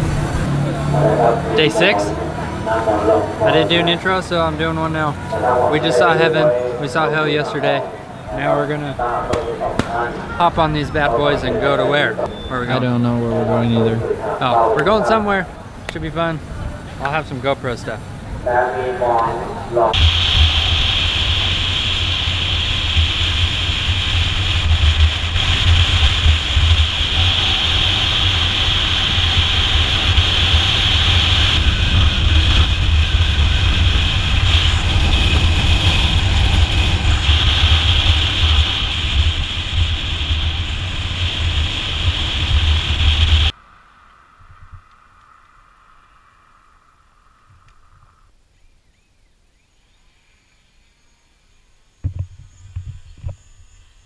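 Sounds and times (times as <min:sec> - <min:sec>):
faint steady whine: 0:00.2 - 0:48.4
wind buffeting a camera: 0:52.0 - 0:53.4.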